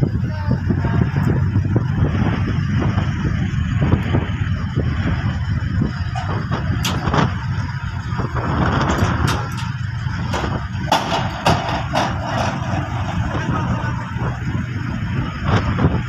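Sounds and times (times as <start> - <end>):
wind buffeting microphone: 0.0 - 16.0
sharp clicks and knocks: 6.2 - 7.3, 8.8 - 13.5.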